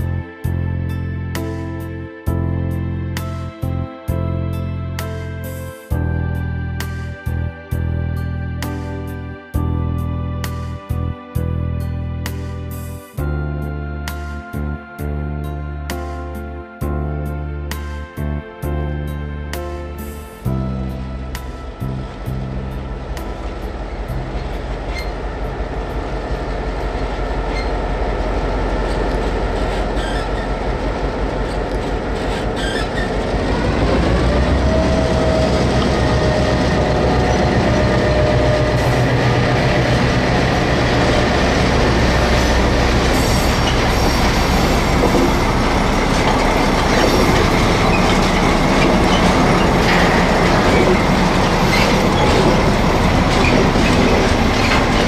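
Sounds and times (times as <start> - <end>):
wheels clicking on rails: 23.3 - 55.0
model locomotive running: 23.7 - 55.0.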